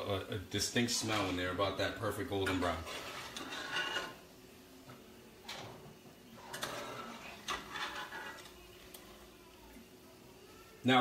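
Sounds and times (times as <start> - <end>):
metal spoon scraping in pot: 0.9 - 1.5, 2.4 - 4.2, 6.4 - 8.6.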